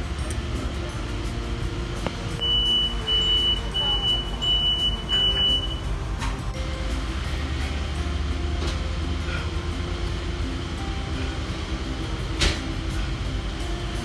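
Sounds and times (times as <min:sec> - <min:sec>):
high warning beeps: 0:02.4 - 0:05.9.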